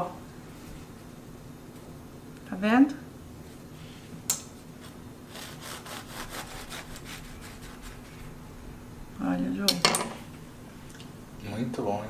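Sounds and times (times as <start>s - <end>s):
bread knife sawing through loaf: 4.8s - 8.2s.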